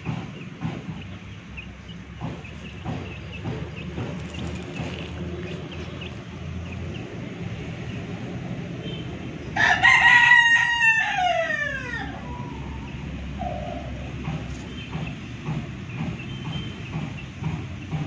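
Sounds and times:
rooster crowing: 0:09.6 - 0:13.0.

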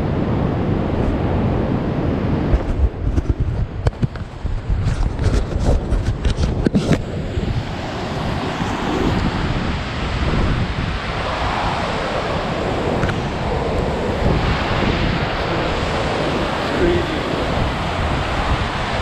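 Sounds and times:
wind buffeting microphone: 0:00.0 - 0:19.0
camera handling knocks: 0:02.6 - 0:04.3
waterfall roaring: 0:07.1 - 0:19.0.

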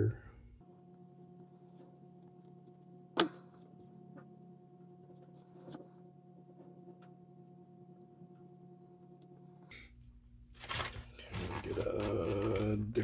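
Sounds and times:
faint electrical hum: 0:00.0 - 0:13.0
rustling: 0:10.5 - 0:12.9.

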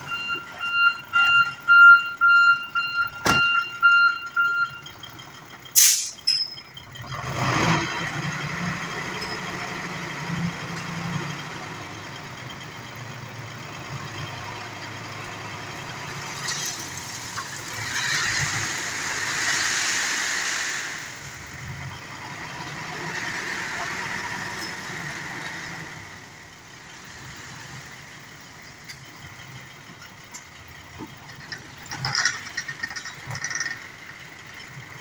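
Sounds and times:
truck engine under load: 0:00.0 - 0:35.0
air hiss: 0:05.8 - 0:06.2
gravel sliding out: 0:16.5 - 0:21.3.

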